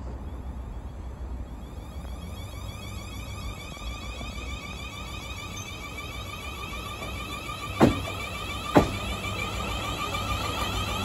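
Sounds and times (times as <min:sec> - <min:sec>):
high whine of traction equipment: 0:00.0 - 0:11.0
train rumble: 0:00.0 - 0:11.0
wheels clunking over rail joint: 0:00.0 - 0:11.0.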